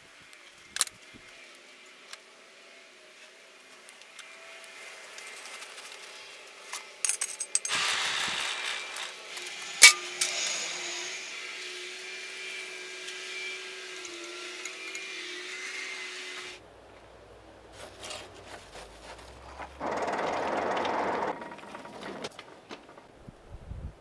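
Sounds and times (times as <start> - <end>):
loud rushing hiss: 7.7 - 12.7
forge blower whining: 7.7 - 16.6, 18.9 - 23.2
coal fire rumbling and crackling: 16.6 - 24.0.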